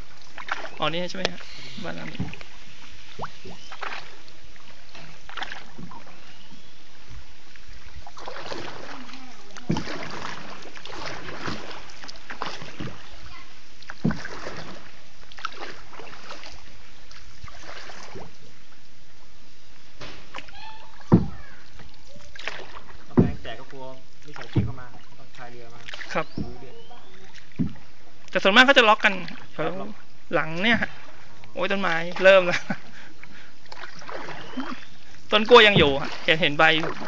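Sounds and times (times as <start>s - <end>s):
paddle splashes: 0.0s - 37.0s
water washing: 0.0s - 37.0s
sharp knocks: 21.1s - 21.5s, 23.2s - 23.5s.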